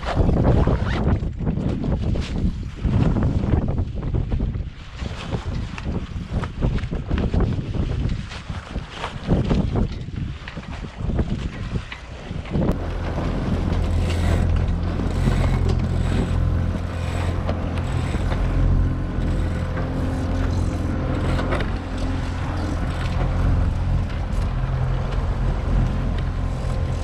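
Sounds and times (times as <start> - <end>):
sail rustling and flapping: 0.0 - 27.0
wind on microphone: 0.0 - 27.0
boat motor humming: 10.8 - 27.0.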